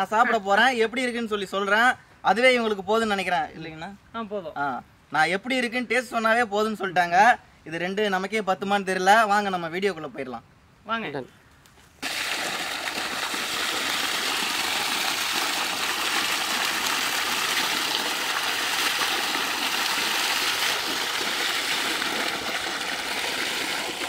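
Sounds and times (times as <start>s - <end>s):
water gushing from a pipe: 12.0s - 24.0s
water splashing over meat: 12.0s - 24.0s.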